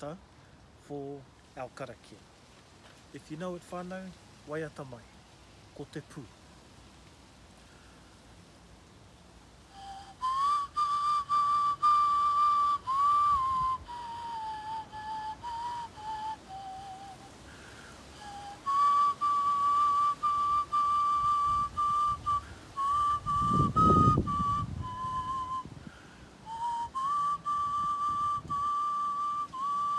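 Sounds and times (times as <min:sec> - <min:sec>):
flute melody: 0:09.7 - 0:17.4, 0:18.1 - 0:25.8, 0:26.4 - 0:29.9.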